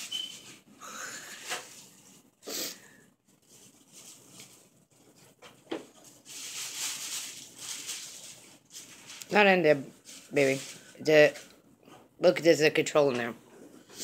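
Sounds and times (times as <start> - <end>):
tissue paper rustling: 0.0 - 2.4, 3.2 - 11.5.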